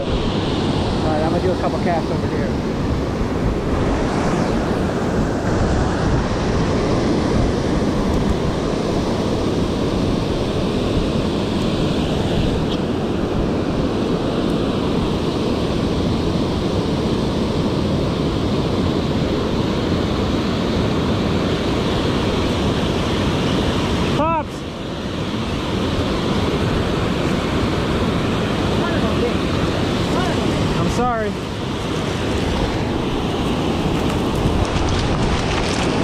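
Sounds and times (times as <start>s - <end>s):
rushing river water: 0.0s - 36.0s.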